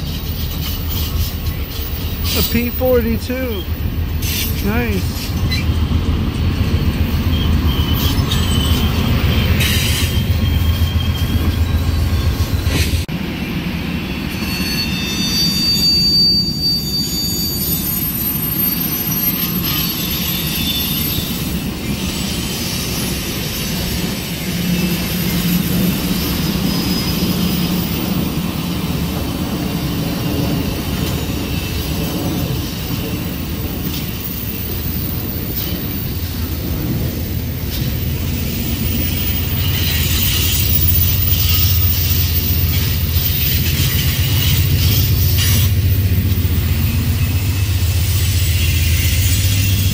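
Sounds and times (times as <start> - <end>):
wheel squeals: 0.0 - 13.1, 14.2 - 28.4, 37.5 - 49.9
train cars rumbling on rails: 0.0 - 49.9.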